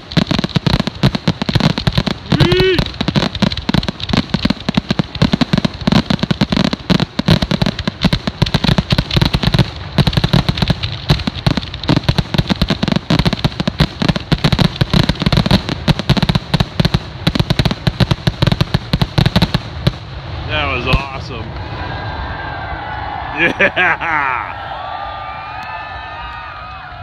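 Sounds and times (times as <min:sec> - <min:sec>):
firework shells bursting: 0:00.0 - 0:21.4.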